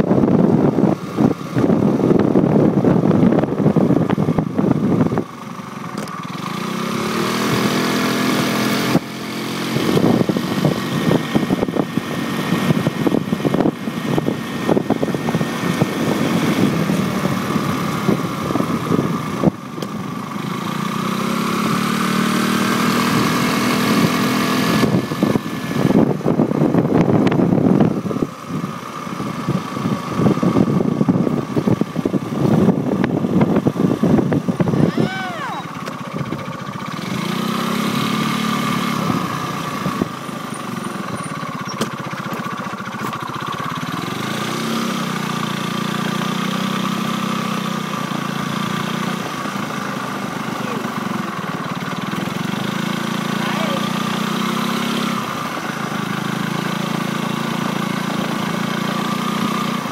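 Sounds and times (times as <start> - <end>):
wind buffeting microphone: 0.0 - 5.4, 24.0 - 35.1
motorcycle engine accelerating: 0.0 - 59.9.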